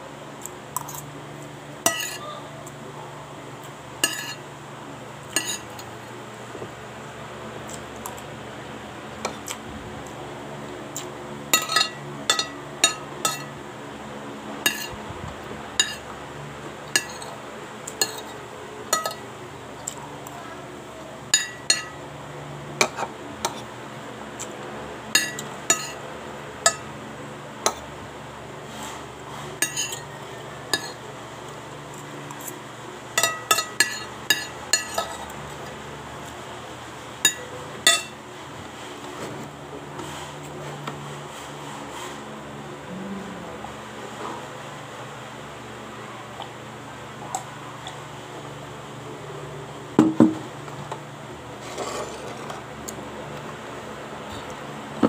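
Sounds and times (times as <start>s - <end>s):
metal spoon clinking on plate: 1.9s - 2.2s, 11.6s - 13.5s, 18.0s - 19.2s, 25.2s - 26.0s, 33.2s - 35.2s.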